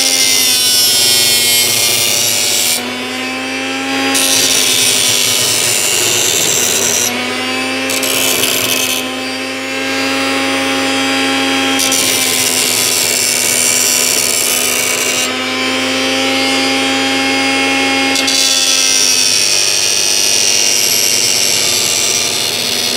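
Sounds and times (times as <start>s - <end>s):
blender motor whine: 0.0s - 22.9s
knife blade grinding on disc: 4.1s - 9.5s, 11.7s - 15.3s.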